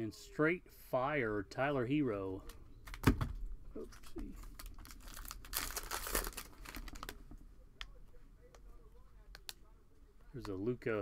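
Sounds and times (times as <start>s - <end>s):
plastic wrapper crinkling and tearing: 3.9s - 7.2s.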